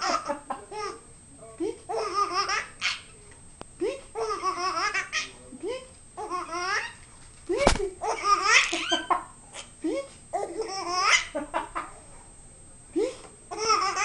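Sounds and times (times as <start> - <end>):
baby laughing: 1.9 - 3.0, 4.2 - 5.4, 6.2 - 7.0, 7.7 - 9.2, 10.4 - 11.4, 13.5 - 14.0.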